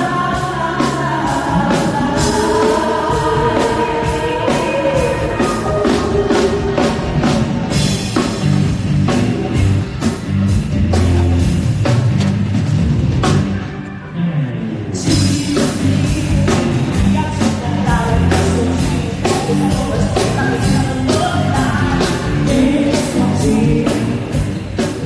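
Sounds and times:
woman singing through speakers: 0:00.0 - 0:07.4, 0:15.0 - 0:25.0
drums and bass beat: 0:00.0 - 0:13.8, 0:15.0 - 0:25.0.

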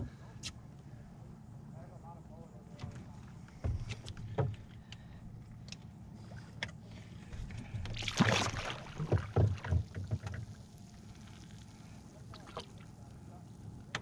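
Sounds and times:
knocks and thumps on boat hull: 0:02.8 - 0:04.6, 0:09.0 - 0:10.5
fish splashing in water: 0:07.7 - 0:13.0.

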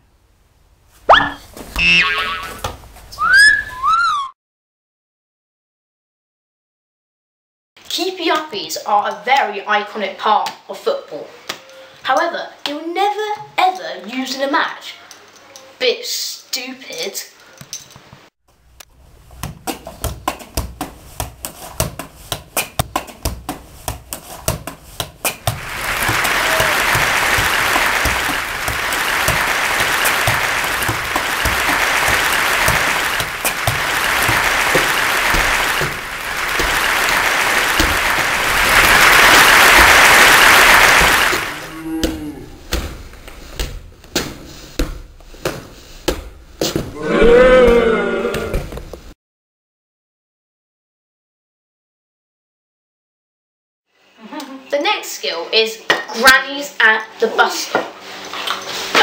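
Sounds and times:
crowd applause: 0:25.5 - 0:42.0.

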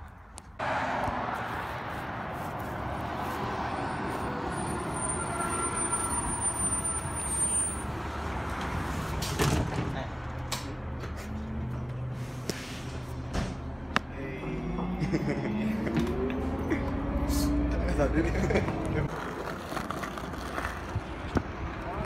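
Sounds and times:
thin high squeal: 0:04.5 - 0:07.9.

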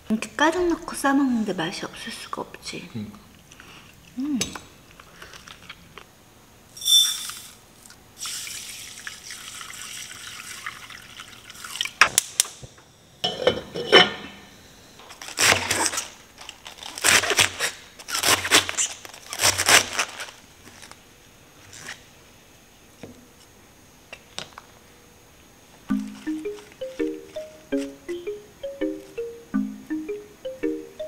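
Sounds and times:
knife slicing cabbage: 0:15.2 - 0:20.3
soft steady hiss: 0:17.5 - 0:31.0.

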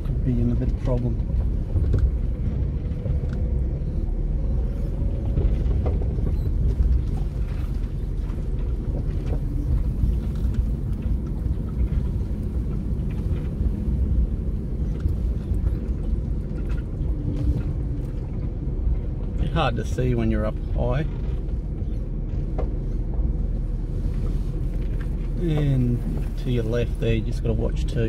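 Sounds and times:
vehicle engine and tyres rumbling: 0:00.0 - 0:28.0.

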